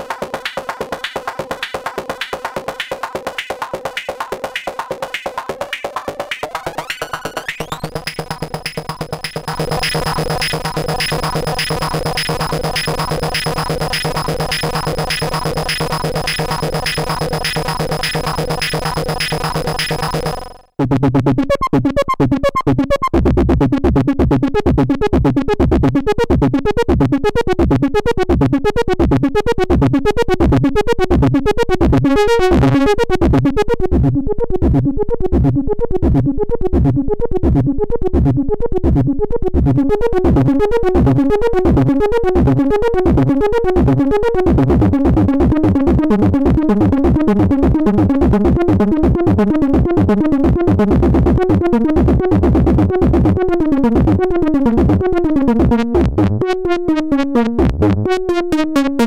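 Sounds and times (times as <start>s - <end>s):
lower pulsing synthesizer notes: 0.0s - 20.6s
pulsing buzzy synthesizer: 0.0s - 20.7s
high steady synth whine: 6.3s - 20.6s.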